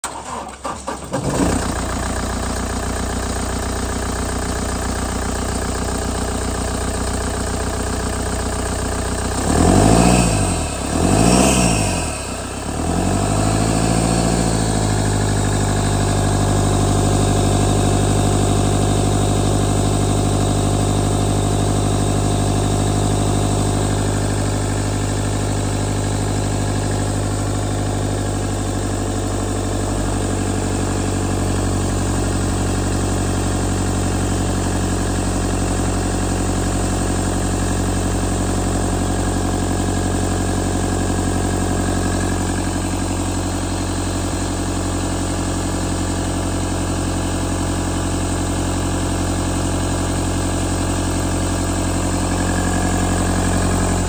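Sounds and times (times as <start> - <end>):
diesel engine idling and revving: 0.0 - 54.0.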